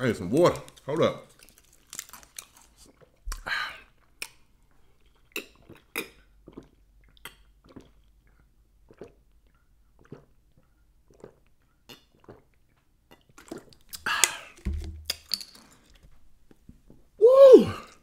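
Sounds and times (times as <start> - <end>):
swallowing sounds: 4.9 - 14.6
person gulping water: 5.0 - 15.2.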